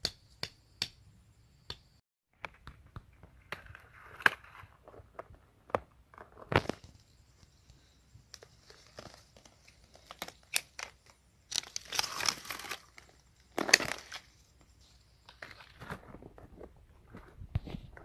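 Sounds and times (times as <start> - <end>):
leaves tearing: 8.6 - 14.4
dry leaves crackling and rustling: 11.5 - 14.4.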